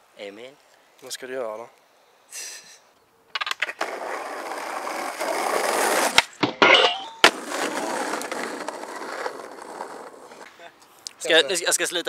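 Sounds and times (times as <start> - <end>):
skateboard wheels rolling on asphalt: 3.3 - 6.3, 7.2 - 10.5
skateboard clacking: 7.2 - 10.5.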